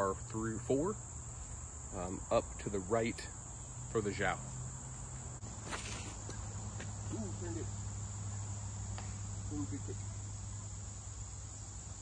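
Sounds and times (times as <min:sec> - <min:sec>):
insect chorus drone: 0:00.0 - 0:12.0.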